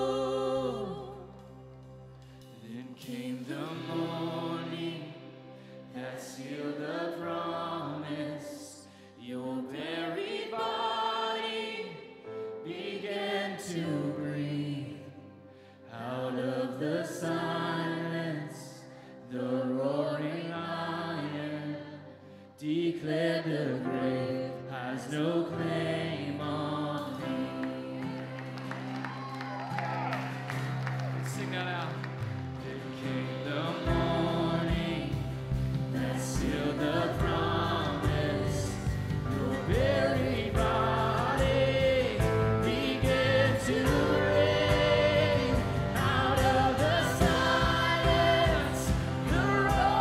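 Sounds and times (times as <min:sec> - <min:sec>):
people singing: 0:00.0 - 0:01.6, 0:02.5 - 0:28.7, 0:32.6 - 0:50.0
acoustic guitar: 0:00.0 - 0:09.2, 0:24.1 - 0:50.0
keyboard low notes: 0:30.4 - 0:50.0.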